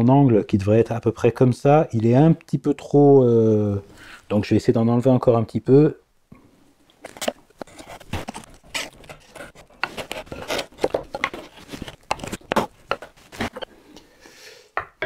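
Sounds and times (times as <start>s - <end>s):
chisel scraping wood: 7.2s - 13.7s.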